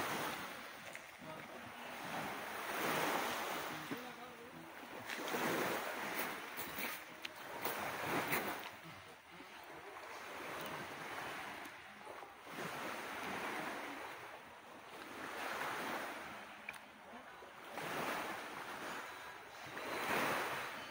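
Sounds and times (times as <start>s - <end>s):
waves washing onto shore: 0.0s - 20.9s.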